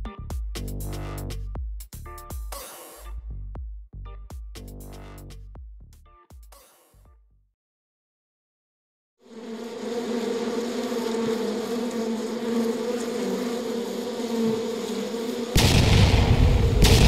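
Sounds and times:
drone propellers buzzing: 15.6 - 17.0
sudden loud rumble: 15.6 - 17.0.

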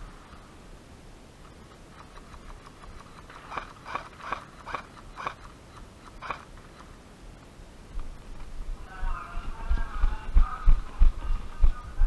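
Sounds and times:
faint clicks: 1.4 - 7.0.

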